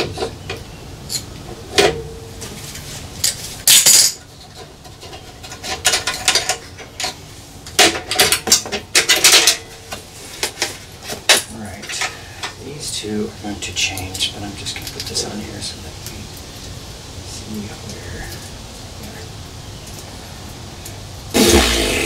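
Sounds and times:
metal tools clinking: 3.2 - 7.2
short loud rasp: 21.4 - 22.0.

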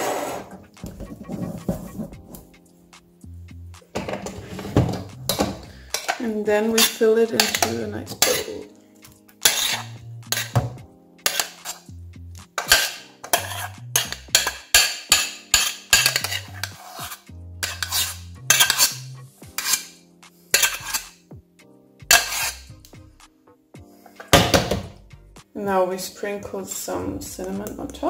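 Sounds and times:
metal spoon scraping pot: 4.0 - 8.7, 9.4 - 11.9, 12.6 - 21.2, 22.1 - 22.7.

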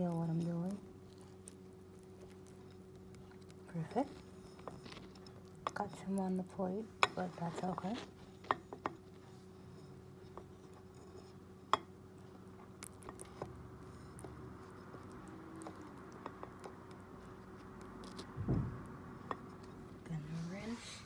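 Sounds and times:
scratchy handling noises: 0.0 - 11.6
dull thump: 18.4 - 18.8.

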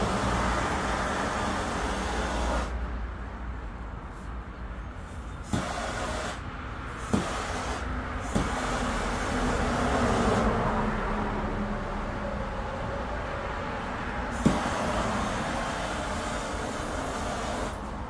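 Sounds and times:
gas torch flame hissing: 0.0 - 2.8, 5.4 - 6.4, 14.3 - 18.0.

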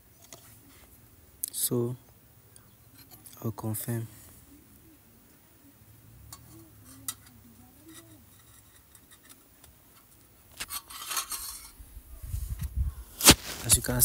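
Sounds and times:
rustling scraping and knocking: 6.4 - 14.0.

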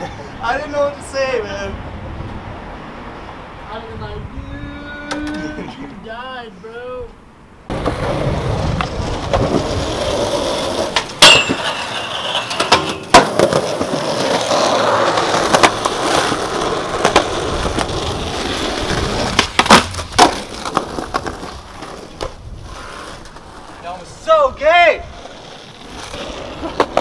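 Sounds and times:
skateboard wheels rolling on concrete: 0.0 - 7.0, 7.6 - 27.0
skateboard clacking on ground: 5.0 - 5.6, 7.7 - 23.8, 25.1 - 27.0.

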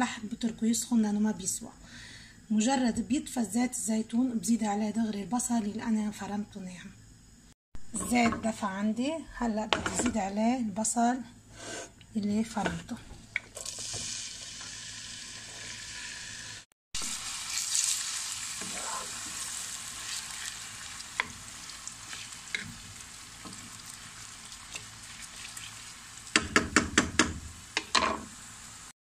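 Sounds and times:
onion sizzling in oil: 13.2 - 28.9.

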